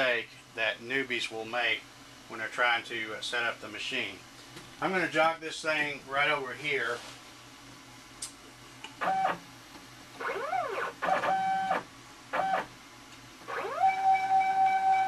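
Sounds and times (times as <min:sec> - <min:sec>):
stepper motors whining: 0:10.2 - 0:11.8.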